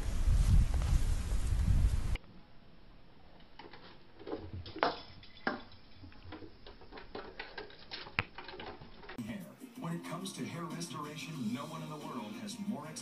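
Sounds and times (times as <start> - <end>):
claws scrabbling on a board: 3.4 - 9.2.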